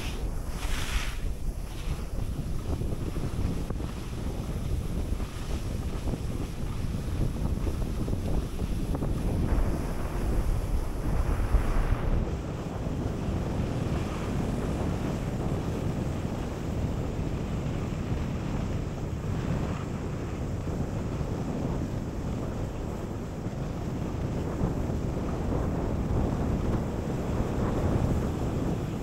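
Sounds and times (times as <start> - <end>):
skis sliding on snow: 0.0 - 17.3, 23.5 - 29.0
wind rushing over microphone: 0.0 - 29.0.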